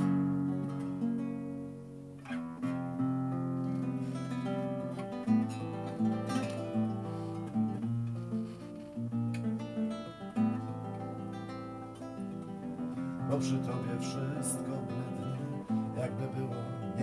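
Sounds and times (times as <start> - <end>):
acoustic guitar strumming and picking: 0.0 - 17.0.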